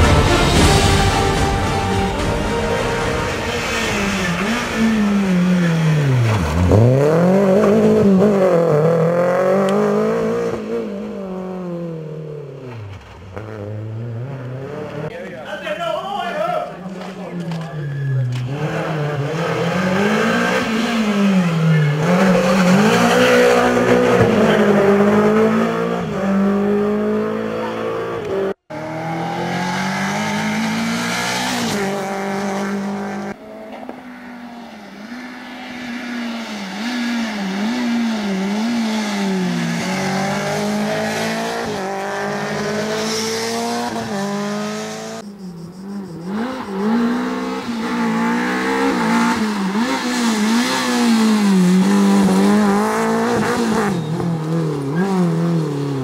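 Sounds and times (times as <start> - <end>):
rally car engine revving: 0.0 - 15.2, 16.7 - 56.0.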